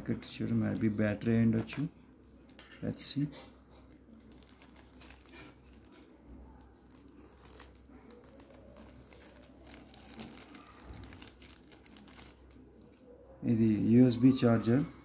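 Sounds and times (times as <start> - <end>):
paper packet crinkling: 3.7 - 13.0.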